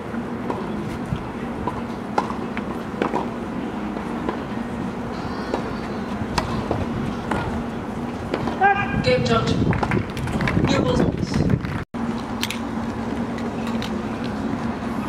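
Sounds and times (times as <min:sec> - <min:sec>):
steady low hum: 0:00.0 - 0:10.6, 0:11.4 - 0:15.0
tennis ball bouncing on court: 0:01.6 - 0:02.4
racket striking ball: 0:01.6 - 0:03.3, 0:05.1 - 0:07.6, 0:08.3 - 0:08.6.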